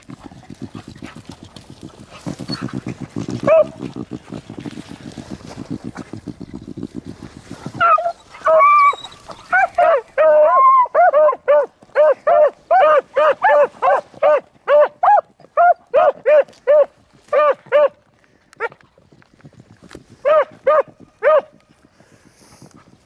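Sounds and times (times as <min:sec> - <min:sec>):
dogs baying and barking: 0:03.4 - 0:03.9, 0:07.8 - 0:18.0, 0:20.2 - 0:21.5.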